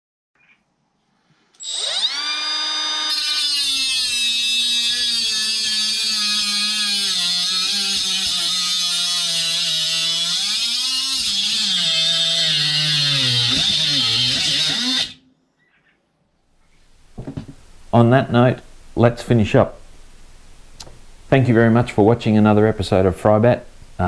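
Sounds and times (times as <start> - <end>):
cut-off tool motor spinning: 1.6 - 15.2
grinding hiss: 2.8 - 15.2.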